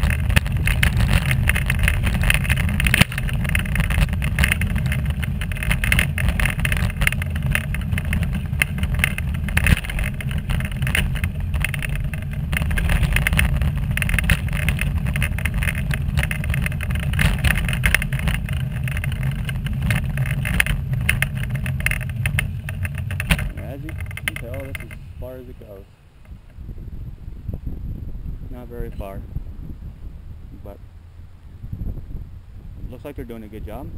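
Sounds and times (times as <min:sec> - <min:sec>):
wheelchair rolling along a path: 0:00.0 - 0:26.6.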